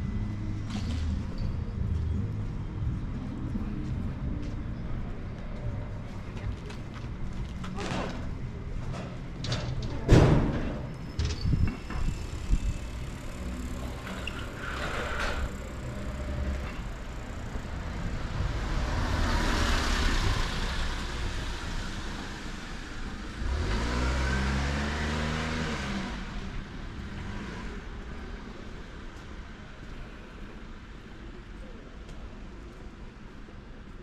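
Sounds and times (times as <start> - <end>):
car tyres passing: 12.0 - 28.4
vehicle engine pulling away: 12.2 - 28.1.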